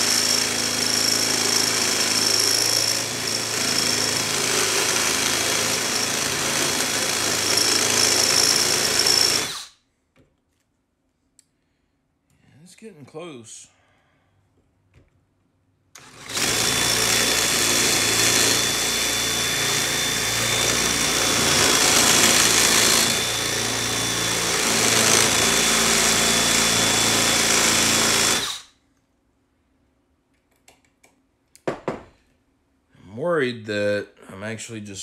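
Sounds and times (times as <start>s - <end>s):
cordless drill boring into metal: 0.0s - 9.7s, 16.0s - 28.7s.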